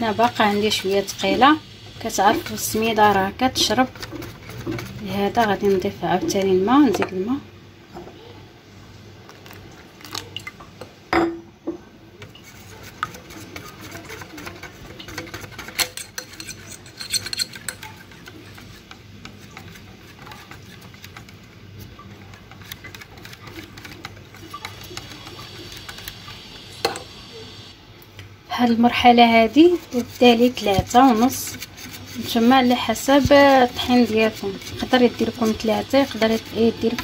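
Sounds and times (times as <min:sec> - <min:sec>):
whisk clicking against glass bowl: 0:12.9 - 0:21.5, 0:22.1 - 0:26.2.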